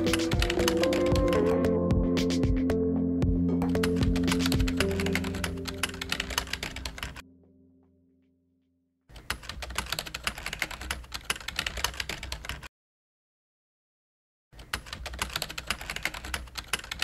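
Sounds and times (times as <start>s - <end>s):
rapid keyboard typing clicks: 0.0s - 2.4s, 3.6s - 7.2s, 9.2s - 12.7s, 14.6s - 17.0s
background music: 0.0s - 8.0s.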